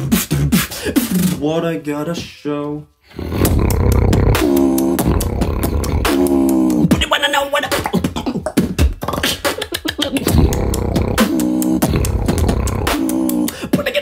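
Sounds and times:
beatboxing drum beat: 0.0s - 1.6s, 3.2s - 14.0s
buzzy vocal synth tone: 3.1s - 7.9s, 10.0s - 14.0s
hummed bass notes: 3.2s - 7.0s, 10.2s - 13.5s.

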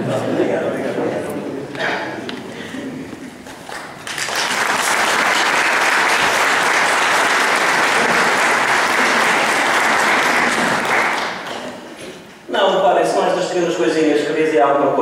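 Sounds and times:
congregation clapping: 3.4s - 11.9s.

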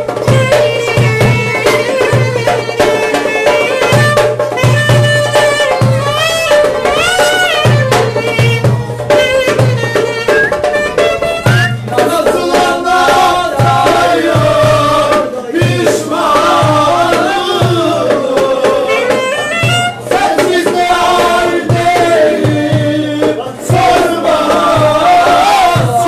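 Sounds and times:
clarinet melody: 0.0s - 12.0s, 18.8s - 20.2s
darbuka drum beating: 0.0s - 26.0s.

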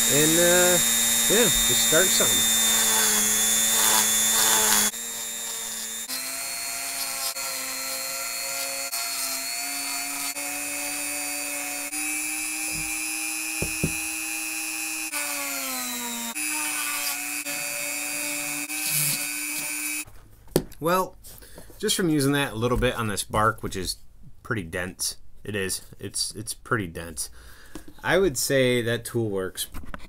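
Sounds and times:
rotary tool grinding wood: 0.0s - 20.1s.

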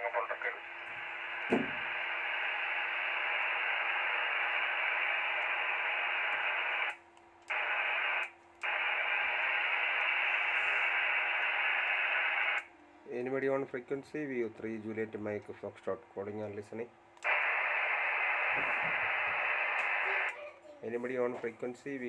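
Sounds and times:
radio static hiss: 0.0s - 12.7s, 17.2s - 20.3s.

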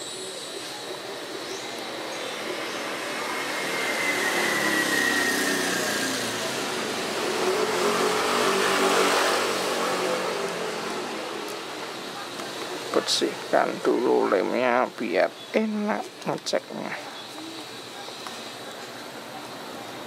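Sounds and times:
vehicle engine passing: 2.0s - 15.0s.

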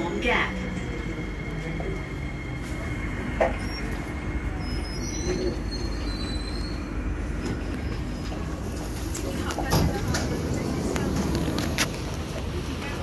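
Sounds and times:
metro train rumble: 0.0s - 13.0s
train wheels and brakes squealing: 1.4s - 8.5s.

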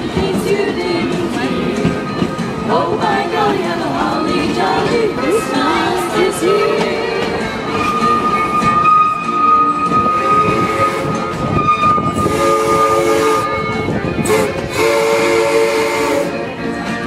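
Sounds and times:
train running rumble: 0.0s - 17.0s
steam train whistle: 7.7s - 16.6s.

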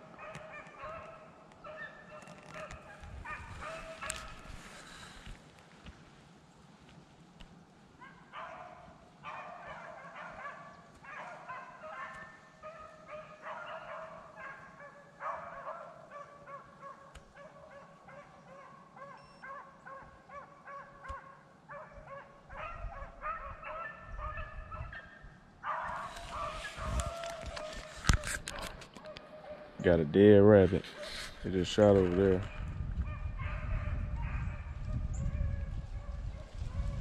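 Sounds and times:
dogs baying: 0.0s - 4.6s, 8.0s - 29.9s.

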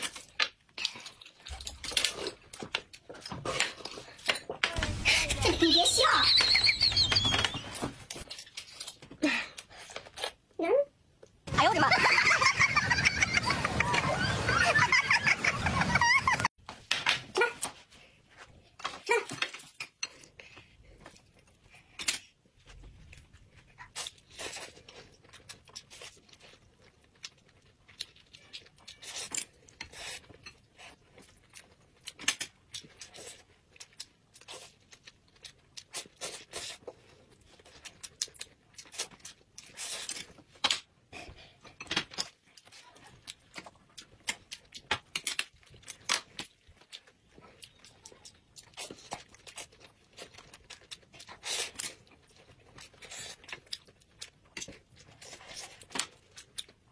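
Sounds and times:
chewing: 0.0s - 4.6s, 19.6s - 56.9s.

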